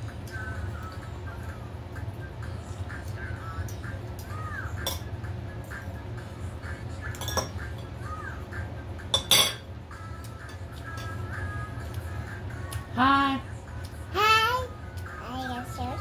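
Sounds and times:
cutlery clinking on plates: 4.8s - 5.1s, 7.1s - 7.9s, 9.1s - 9.7s.

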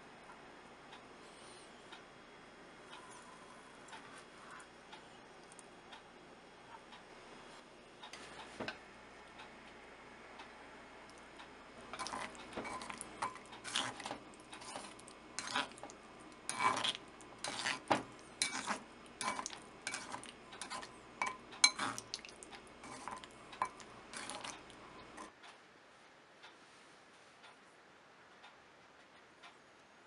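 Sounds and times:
chopsticks scraping ceramic mortar: 12.0s - 15.9s, 16.5s - 22.1s, 22.8s - 24.6s.

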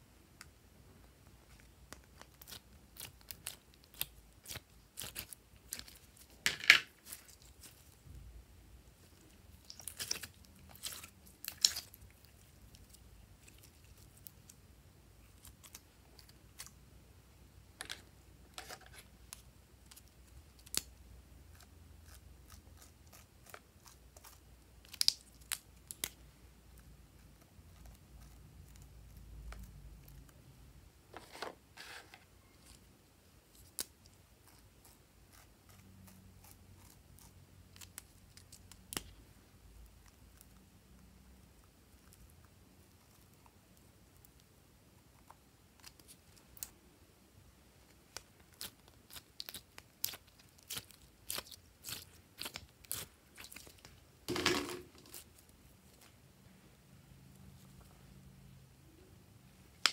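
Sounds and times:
slime squishing and popping: 9.5s - 12.0s.

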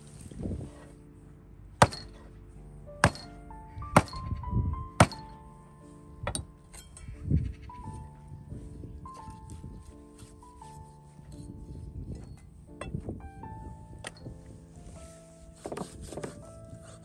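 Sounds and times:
background music: 0.0s - 17.0s
knife chopping on wooden block: 3.0s - 3.2s.

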